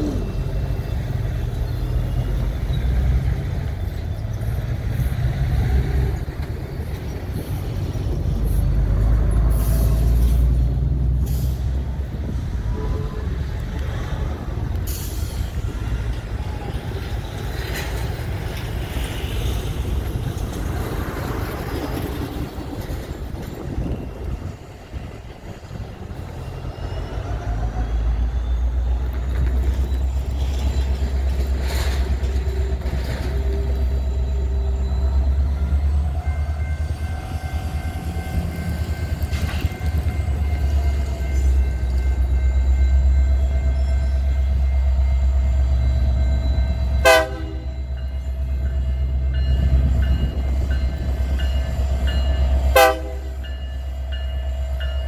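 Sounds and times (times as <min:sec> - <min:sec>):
diesel locomotive rumbling: 0:00.0 - 0:55.0
locomotive horn toots: 0:12.6 - 0:13.8, 0:47.0 - 0:47.9, 0:52.6 - 0:53.5.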